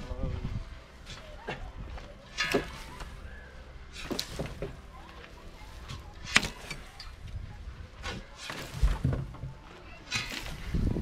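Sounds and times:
spade scraping into soil: 2.3s - 4.9s, 5.5s - 7.2s, 8.0s - 9.3s, 10.0s - 11.0s.

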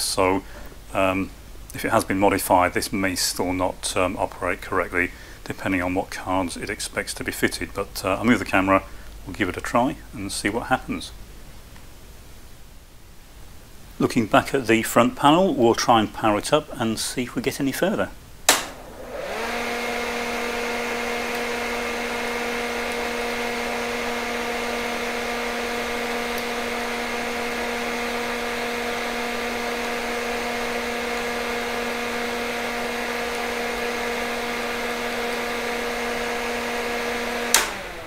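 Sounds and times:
key switch click: 18.5s - 18.8s
computer cooling fans whirring: 18.5s - 38.0s.

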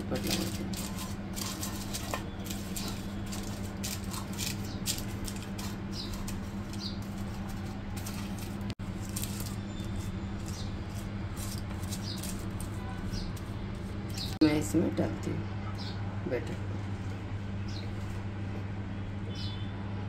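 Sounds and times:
paper crinkling: 0.0s - 14.4s
steady low hum: 0.0s - 20.0s.

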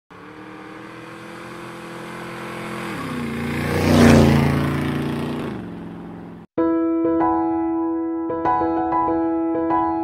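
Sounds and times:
vehicle engine passing by: 0.1s - 6.5s.

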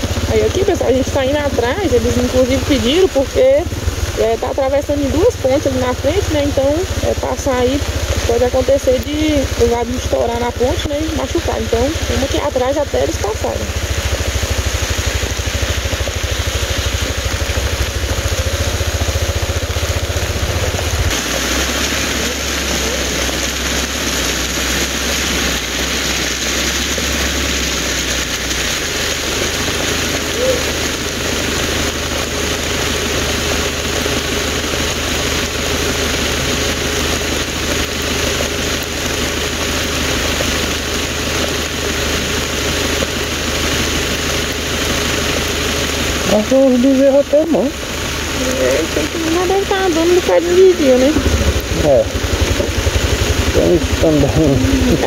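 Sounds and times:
road and wind noise: 0.0s - 55.0s
vehicle engine running: 0.0s - 55.0s.

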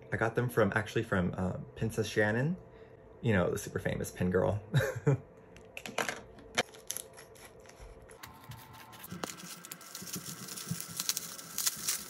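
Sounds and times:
bubble wrap crinkling: 6.6s - 12.0s.

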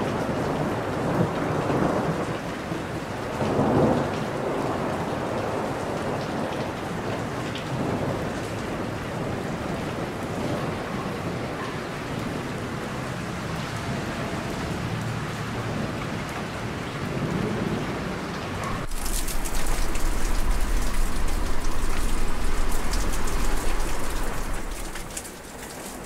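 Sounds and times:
heavy crackling rain: 0.0s - 26.0s
rain falling: 0.0s - 26.0s
deep low rumble: 18.7s - 25.1s.

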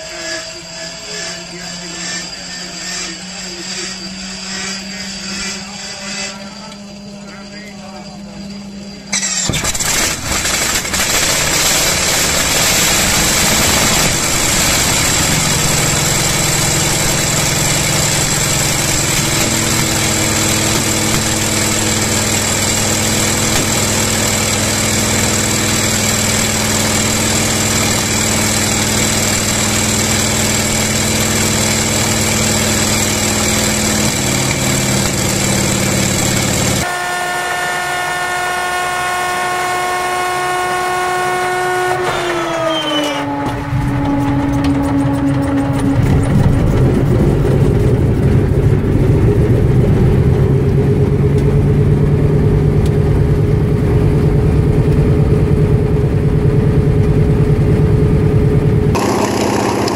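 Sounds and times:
steady hum with held tones: 0.0s - 9.3s
radial aircraft engine running: 0.0s - 59.9s.

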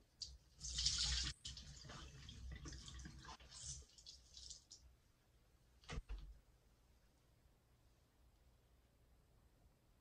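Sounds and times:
water dripping into basin: 0.1s - 4.9s
water squirting from sponge: 0.2s - 4.8s.

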